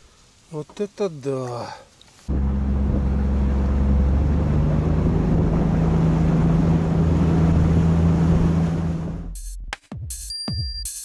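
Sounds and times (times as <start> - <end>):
wind noise: 2.3 - 9.2
motorboat engine running: 2.3 - 9.3
water rushing: 2.3 - 9.3.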